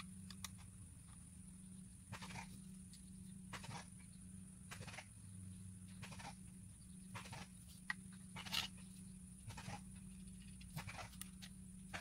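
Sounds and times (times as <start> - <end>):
steady low hum: 0.0 - 12.0
plastic parts clicking and scraping: 7.2 - 8.9.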